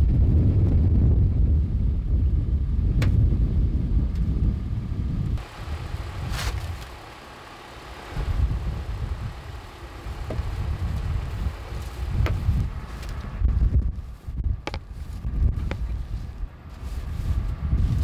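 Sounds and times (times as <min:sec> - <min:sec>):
wind buffeting microphone: 0:00.0 - 0:07.2, 0:07.9 - 0:18.0
snow brush swishing: 0:06.2 - 0:07.0, 0:10.0 - 0:13.2, 0:14.0 - 0:18.0.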